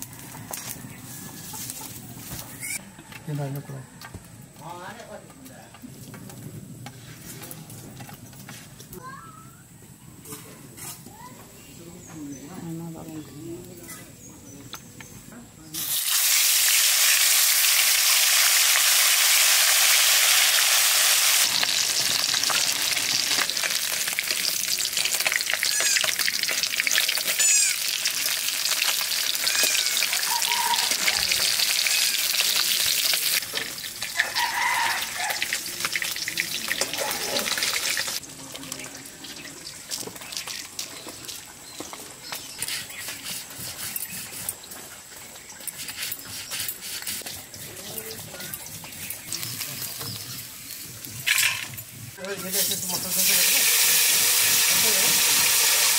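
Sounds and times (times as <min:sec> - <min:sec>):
fish sizzling in hot oil: 0:15.8 - 0:41.9, 0:47.2 - 0:55.9.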